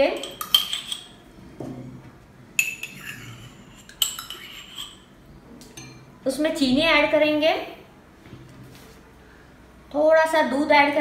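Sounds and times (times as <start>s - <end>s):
metal spoon clinking on dishes: 0.0s - 1.2s, 2.6s - 5.1s, 5.7s - 6.1s.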